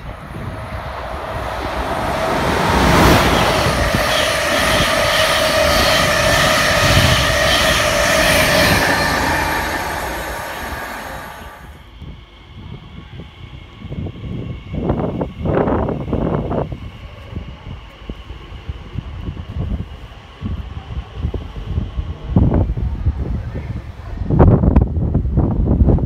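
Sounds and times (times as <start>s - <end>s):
train passing at speed: 0.0s - 25.9s
high whine of train: 0.0s - 26.0s.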